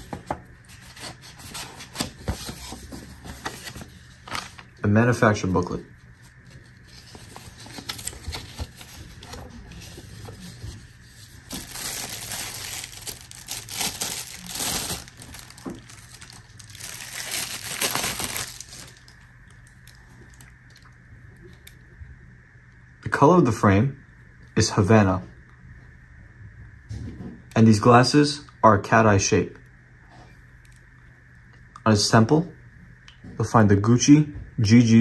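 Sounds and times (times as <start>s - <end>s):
plastic bag crinkling: 6.7s - 19.2s.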